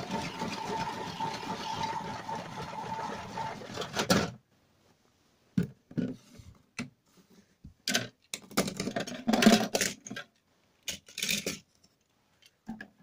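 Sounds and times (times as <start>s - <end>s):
toy washing machine whirring: 0.0s - 4.2s.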